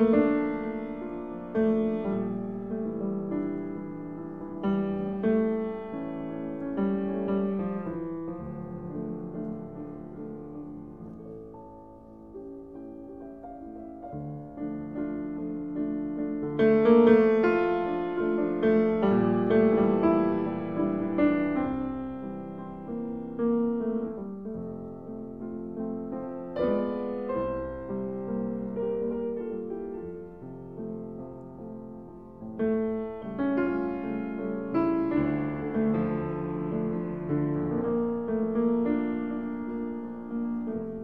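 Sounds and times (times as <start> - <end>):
slow soft piano music: 0.0 - 41.0.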